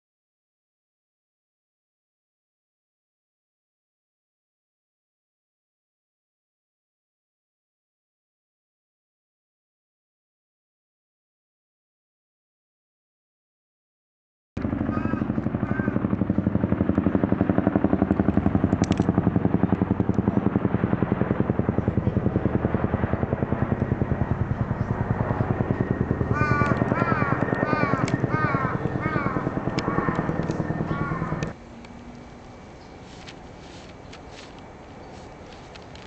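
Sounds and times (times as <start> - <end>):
pulsing mechanical drone: 14.6 - 33.6.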